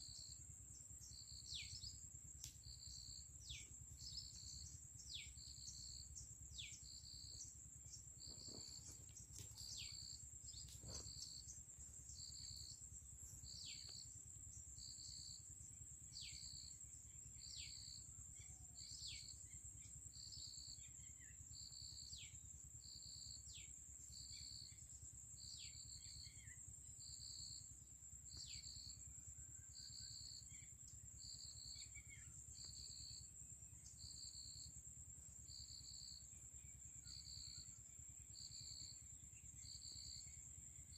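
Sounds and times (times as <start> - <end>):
insect chirps: 0.0 - 40.9
insect trilling: 2.6 - 14.2.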